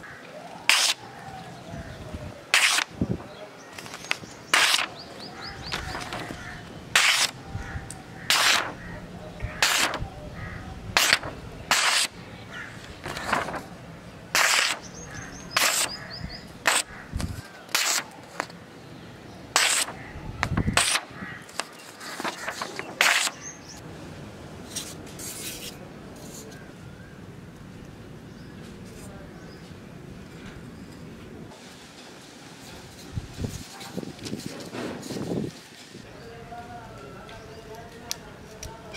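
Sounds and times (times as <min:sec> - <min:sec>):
sword slicing paper: 0:00.7 - 0:01.0, 0:02.5 - 0:03.0, 0:03.8 - 0:05.0, 0:07.0 - 0:07.4, 0:08.2 - 0:08.8, 0:09.6 - 0:10.0, 0:11.0 - 0:12.2, 0:13.0 - 0:13.7, 0:14.3 - 0:14.9, 0:15.6 - 0:16.0, 0:16.6 - 0:18.5, 0:19.6 - 0:20.0, 0:20.7 - 0:23.4.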